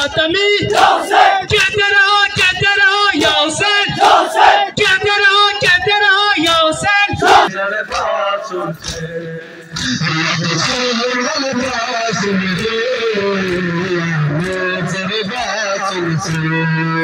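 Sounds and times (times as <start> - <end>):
crowd of men chanting: 0.0 - 9.7
palms slapping chests: 0.6 - 1.7.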